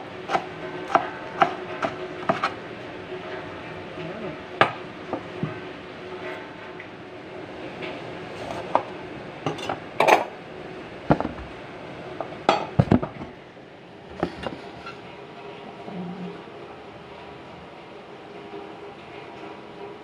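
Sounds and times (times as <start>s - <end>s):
utensils knocking on countertop: 11.1s - 11.5s.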